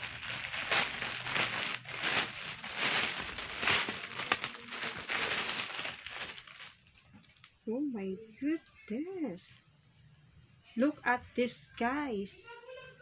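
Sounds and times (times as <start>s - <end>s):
plastic packaging crinkling: 0.0s - 7.6s.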